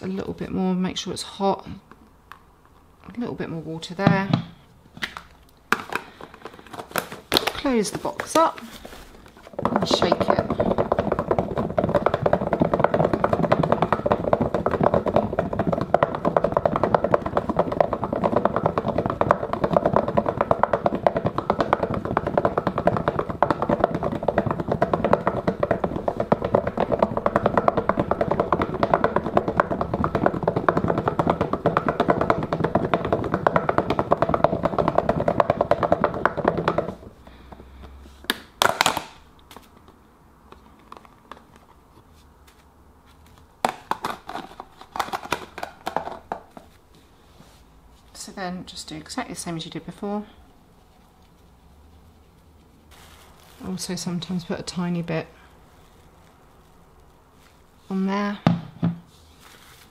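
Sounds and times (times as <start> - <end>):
felt balls sloshing in plastic box: 5.7 - 38.8, 50.8 - 58.3.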